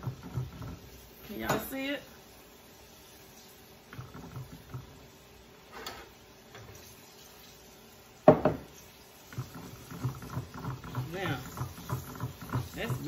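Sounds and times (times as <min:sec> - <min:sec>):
fryer oil bubbling: 0:00.0 - 0:13.0
handling knocks at counter: 0:08.3 - 0:08.7.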